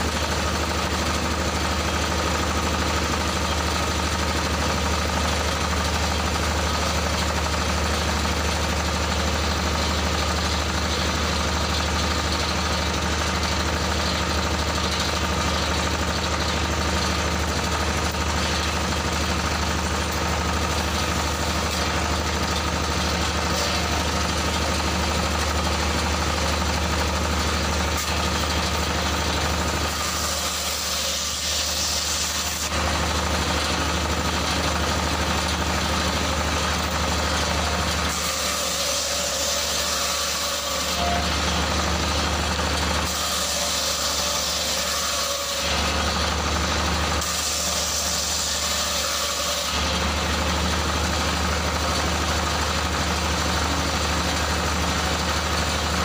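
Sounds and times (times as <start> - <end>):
stationary engine running: 0.0 - 38.2, 49.6 - 56.0
saw blade cutting wood: 0.0 - 56.0.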